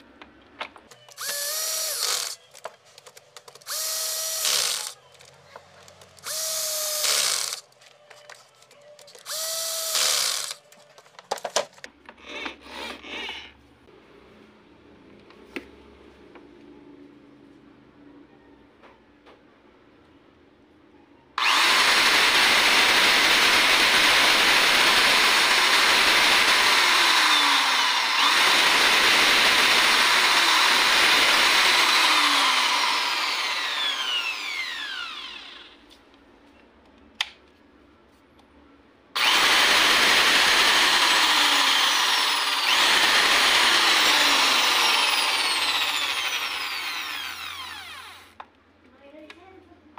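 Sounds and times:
electric drill running: 0:01.1 - 0:02.4, 0:03.6 - 0:05.0, 0:06.2 - 0:07.8, 0:09.2 - 0:10.6, 0:21.4 - 0:35.8, 0:39.2 - 0:48.4
falling whine of drill: 0:01.1 - 0:02.4, 0:03.7 - 0:05.0, 0:06.2 - 0:07.7, 0:09.2 - 0:10.6, 0:21.4 - 0:35.8, 0:39.2 - 0:48.4.

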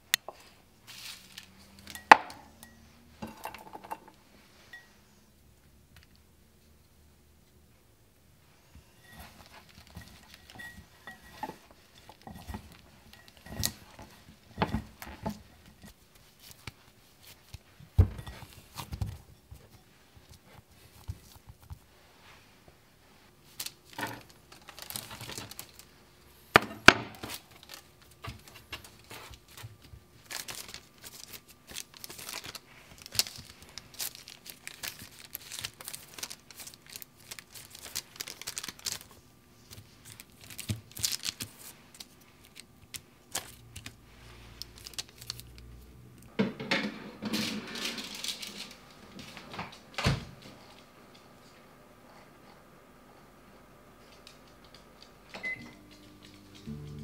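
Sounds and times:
hands rubbing crumbly dough: 0:00.3 - 0:01.8
parchment paper rustling: 0:00.4 - 0:02.1, 0:08.8 - 0:26.1, 0:27.2 - 0:45.6, 0:47.3 - 0:49.9.

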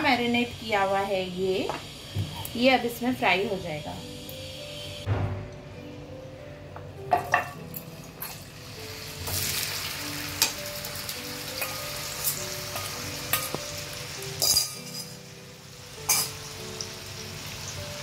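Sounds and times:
meat sizzling in hot oil: 0:07.6 - 0:18.0.

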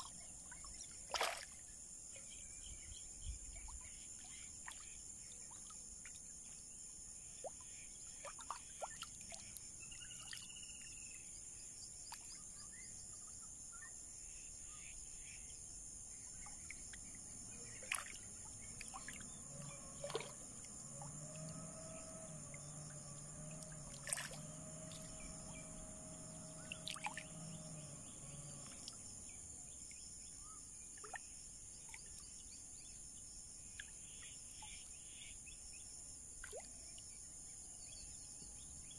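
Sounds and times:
high insect drone: 0:17.1 - 0:30.8
low drone: 0:17.3 - 0:29.4.

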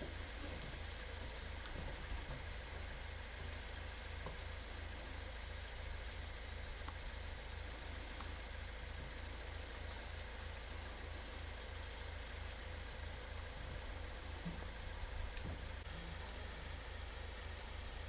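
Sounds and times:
faint ticks: 0:00.0 - 0:06.1, 0:06.7 - 0:10.6, 0:12.1 - 0:15.9
low throbbing mechanical hum: 0:00.0 - 0:18.0.

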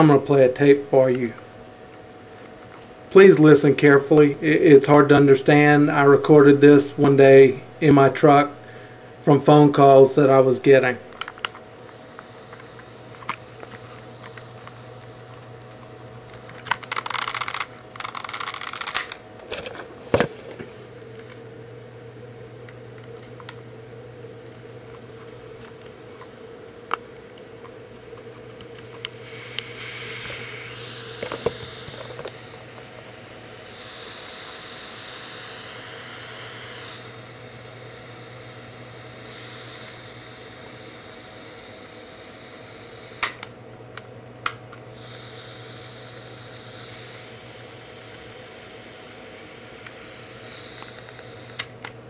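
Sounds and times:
recorder playback hum and hiss: 0:00.0 - 0:52.0
recorder clicks and handling: 0:11.1 - 0:20.3, 0:43.2 - 0:44.8, 0:50.8 - 0:52.0
sharp clicks: 0:16.4 - 0:19.2, 0:43.2 - 0:44.8, 0:50.8 - 0:52.0.

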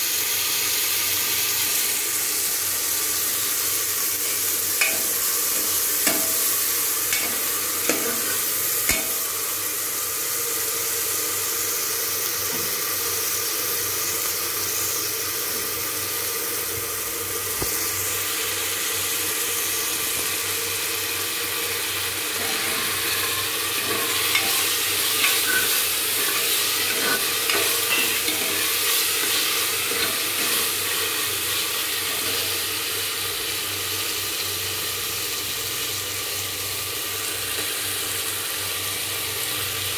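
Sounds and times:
food sizzling in oil: 0:00.0 - 0:39.9
steel ladle scraping pot: 0:04.2 - 0:09.3, 0:22.3 - 0:31.2.

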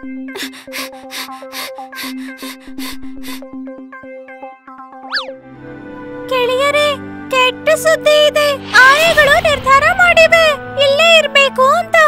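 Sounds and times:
playful cartoon music: 0:00.0 - 0:12.0
swooping sound effect: 0:05.1 - 0:05.4.

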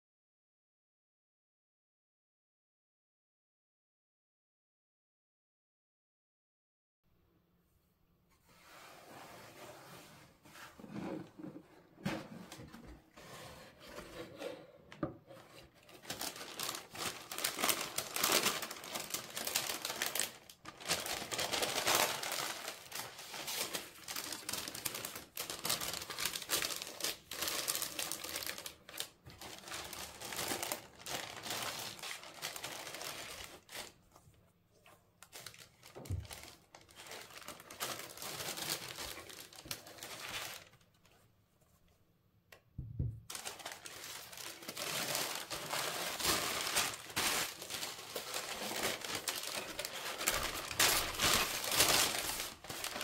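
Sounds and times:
tissue paper crinkling: 0:15.4 - 0:41.2, 0:43.3 - 0:53.0
dull thump: 0:42.8 - 0:43.2.

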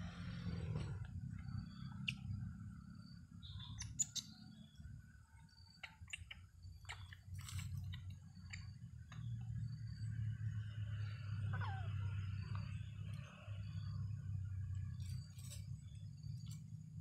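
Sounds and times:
steady low hum: 0:00.0 - 0:17.0
small clicks and rustles: 0:07.0 - 0:09.3.

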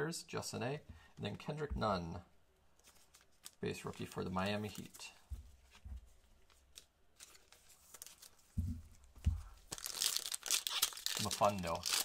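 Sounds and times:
dull thumps of cards handled: 0:05.2 - 0:06.2, 0:08.5 - 0:09.6
foil card pack tearing: 0:09.7 - 0:12.0.

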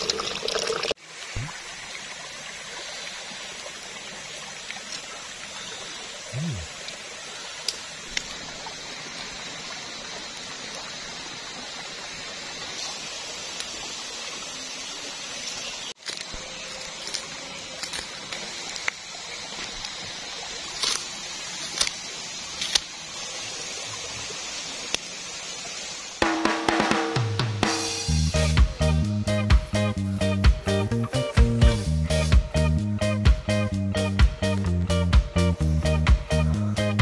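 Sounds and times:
outdoor hiss: 0:00.0 - 0:28.9.

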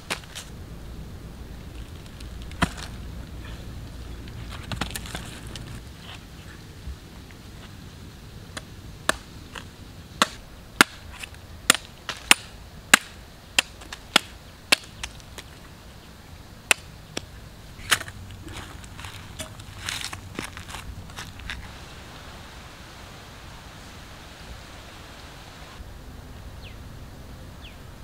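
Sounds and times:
knife chopping fruit husk: 0:10.2 - 0:15.1.

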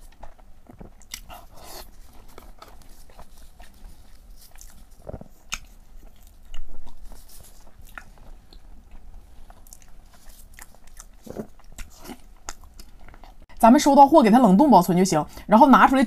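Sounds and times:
person chewing sticky food: 0:00.0 - 0:13.5.

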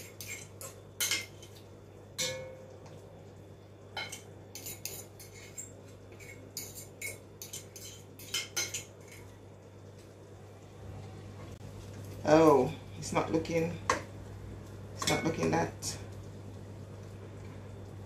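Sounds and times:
spoon scraping and clinking bowl: 0:00.0 - 0:01.6, 0:04.0 - 0:09.3.

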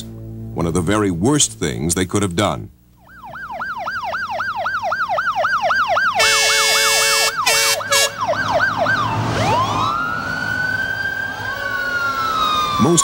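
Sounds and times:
siren wailing: 0:03.0 - 0:13.0
siren yelping: 0:03.0 - 0:13.0
horn blasts: 0:06.2 - 0:08.3.

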